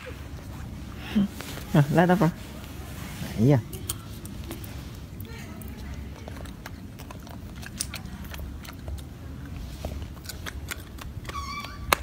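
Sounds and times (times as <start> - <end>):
monkey chewing food: 3.6 - 12.0
high-pitched monkey call: 11.2 - 12.0.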